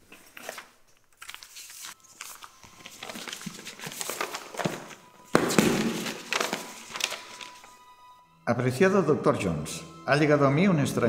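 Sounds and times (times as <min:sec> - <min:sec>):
paper rustling and crinkling: 0:00.0 - 0:07.8.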